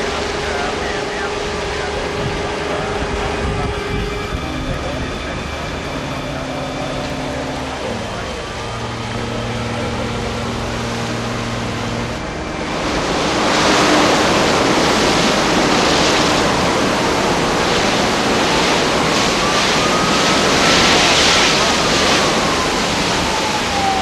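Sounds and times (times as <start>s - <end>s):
faint rising and falling tone: 0.0s - 24.0s
low steady hum: 0.0s - 24.0s
fire flames rushing with wind: 12.3s - 24.0s.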